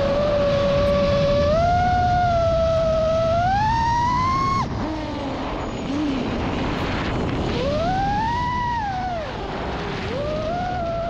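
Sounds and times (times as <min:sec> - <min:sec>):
drone motors whining: 0:00.0 - 0:11.0
wind rush: 0:00.0 - 0:11.0.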